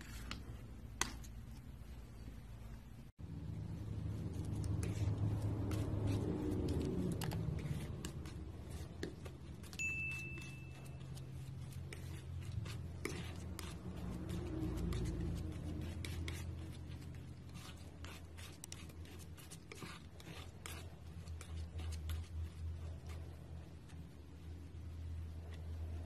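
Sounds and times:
low steady hum: 0.0s - 26.0s
palette knife scraping paint: 4.0s - 24.0s
high bell ding: 9.8s - 11.0s.

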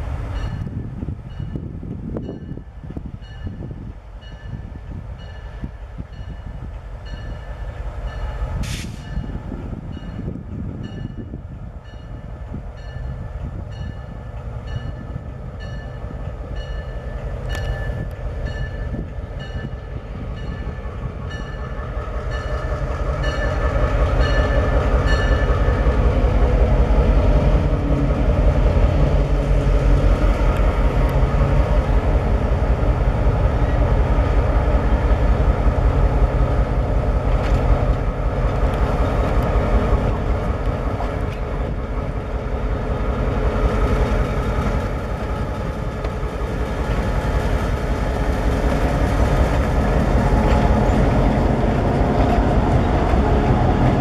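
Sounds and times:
diesel locomotive engine rumble: 0.0s - 54.0s
locomotive bell ringing: 9.0s - 25.8s.

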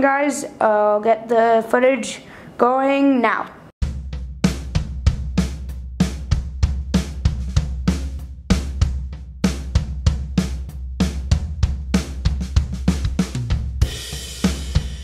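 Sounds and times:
bass line: 3.8s - 15.0s
drum kit beat: 3.8s - 15.0s.

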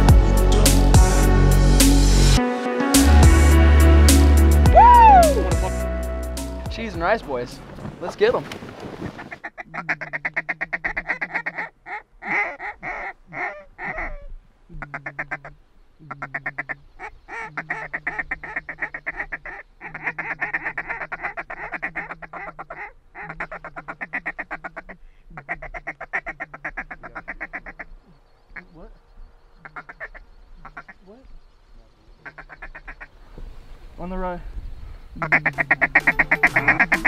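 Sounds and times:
duck call quacks: 9.2s - 27.9s, 29.6s - 31.1s, 32.2s - 33.1s, 35.2s - 37.0s
duck call feed chatter: 9.4s - 14.2s, 16.1s - 27.8s, 32.2s - 33.0s, 35.2s - 37.0s.

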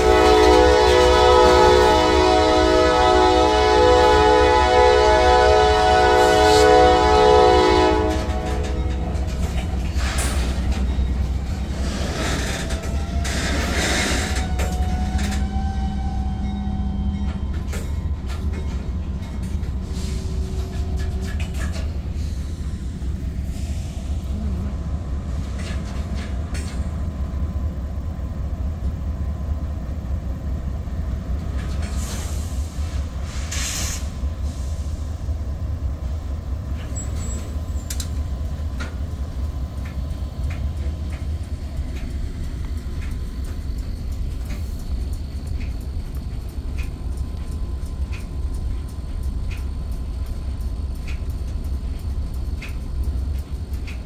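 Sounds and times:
freight train rumbling past: 0.0s - 54.0s
train clicks and clanks: 0.0s - 54.0s
faint wheel squeals: 36.8s - 38.0s.

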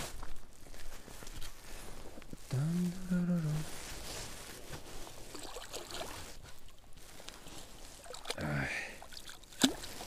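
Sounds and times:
water splashing and sloshing: 3.6s - 10.0s
fish flapping at water's edge: 9.0s - 10.0s.

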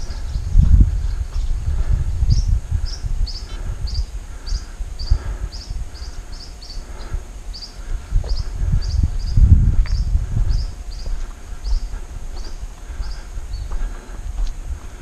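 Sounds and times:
small bird chirping: 2.2s - 13.7s
footsteps on dirt track: 9.8s - 15.0s.

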